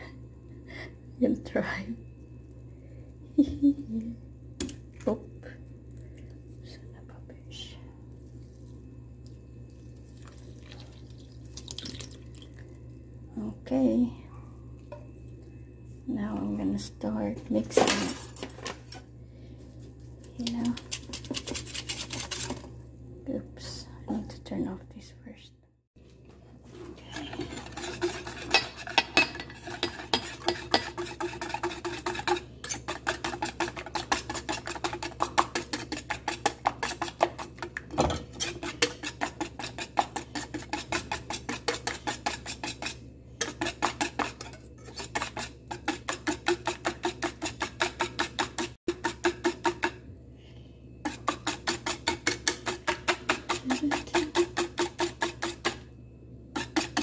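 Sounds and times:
wire whisk scraping metal bowl: 0:20.4 - 0:22.7, 0:27.0 - 0:50.0, 0:51.0 - 0:55.8, 0:56.6 - 0:57.0.

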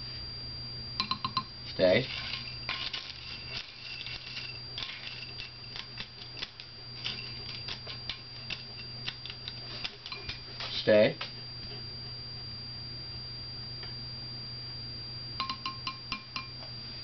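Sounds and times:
steady low hum: 0:00.0 - 0:17.0
kibble clicking in a bowl: 0:02.7 - 0:10.4.

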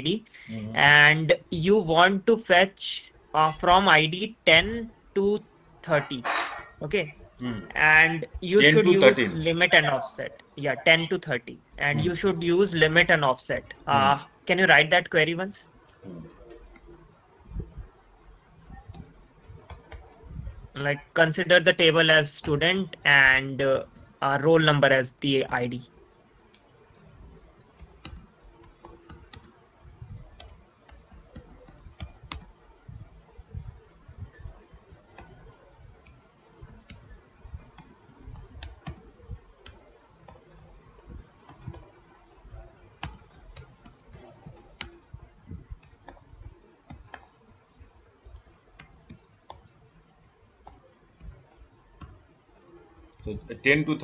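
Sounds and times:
typing on computer keyboard: 0:18.7 - 0:20.1, 0:27.7 - 0:29.6, 0:30.2 - 0:32.5, 0:34.4 - 0:42.0, 0:43.0 - 0:45.1, 0:45.7 - 0:47.4, 0:48.2 - 0:49.8.

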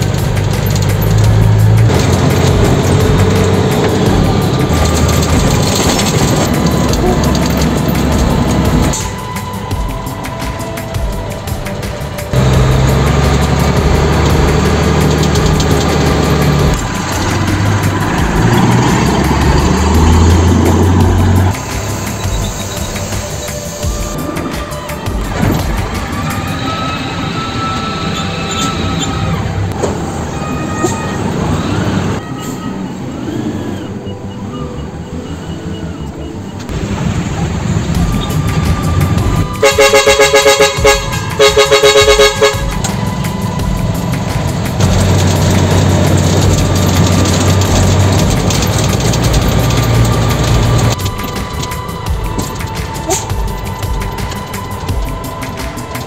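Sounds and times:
metallic squeals and whines: 0:00.0 - 0:36.7
diesel vehicles rumbling: 0:00.0 - 0:56.0
road noise: 0:00.0 - 0:56.0.

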